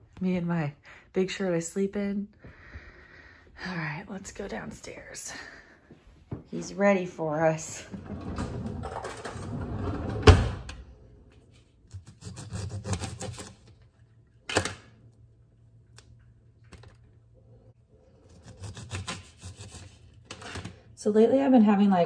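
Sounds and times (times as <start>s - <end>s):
knife slicing lemon: 11.9s - 13.7s, 18.2s - 20.1s.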